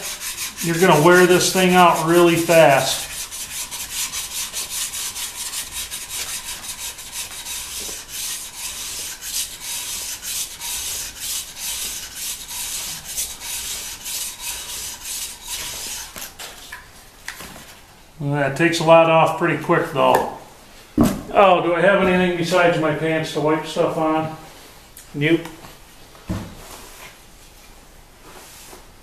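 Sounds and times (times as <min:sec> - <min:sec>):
sharpening stone rasping on metal: 0:00.0 - 0:16.2.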